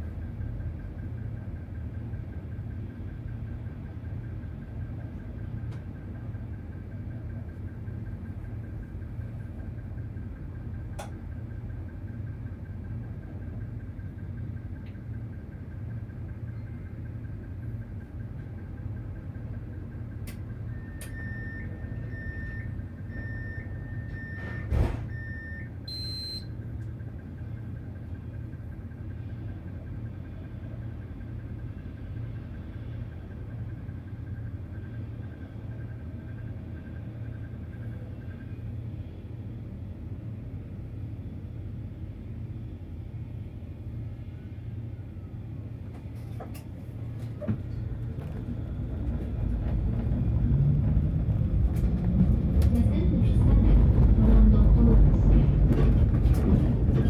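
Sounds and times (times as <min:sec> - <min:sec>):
tram rumbling: 0:00.0 - 0:57.0
tram doors shutting knock: 0:24.1 - 0:25.3, 0:45.8 - 0:57.0.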